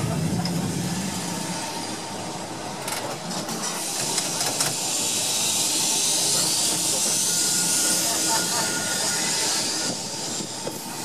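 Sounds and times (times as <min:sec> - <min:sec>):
tram wheels rumbling: 0:00.0 - 0:11.0
hiss: 0:03.5 - 0:11.0.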